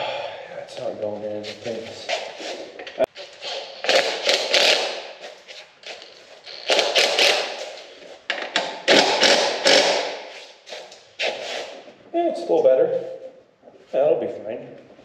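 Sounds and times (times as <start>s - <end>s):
impact driver rattling bursts: 8.4s - 10.3s.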